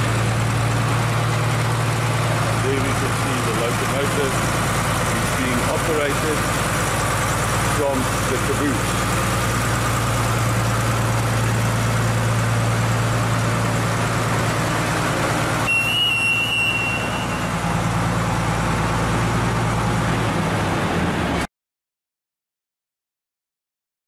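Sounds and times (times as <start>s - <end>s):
diesel locomotive engine running: 0.0s - 21.5s
high-pitched beep: 15.7s - 17.5s.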